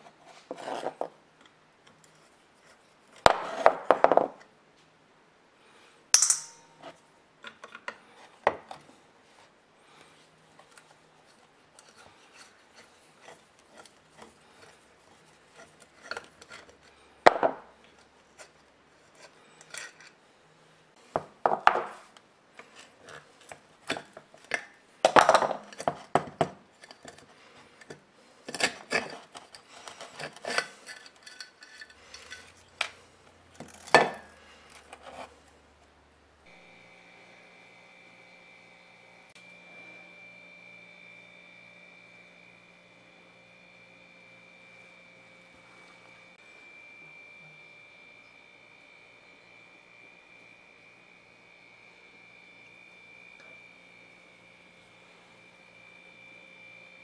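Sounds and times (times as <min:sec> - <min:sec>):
screwdriver working a screw: 0:27.8 - 0:32.9.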